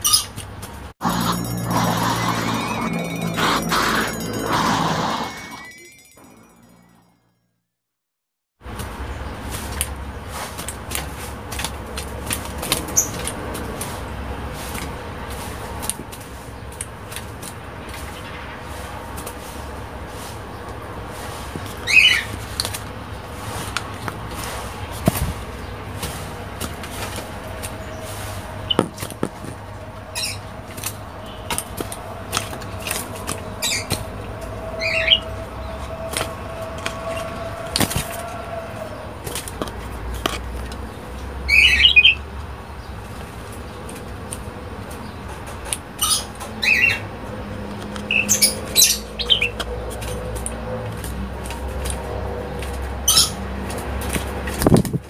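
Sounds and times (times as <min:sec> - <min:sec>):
bird harsh calls: 0:34.8 - 0:39.1.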